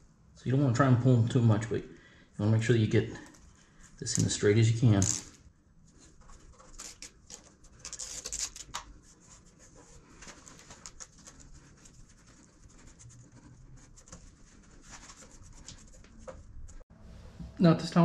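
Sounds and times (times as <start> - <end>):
hands handling light strip cable: 3.2 - 16.8.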